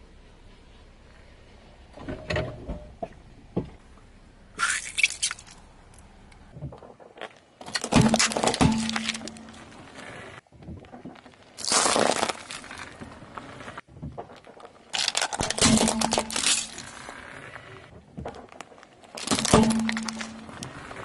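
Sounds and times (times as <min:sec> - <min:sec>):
tyre crushing small objects: 0:06.8 - 0:09.7, 0:10.9 - 0:17.2, 0:18.2 - 0:21.0
plastic tubs crunching: 0:11.6 - 0:13.1, 0:14.8 - 0:17.0, 0:19.1 - 0:20.7.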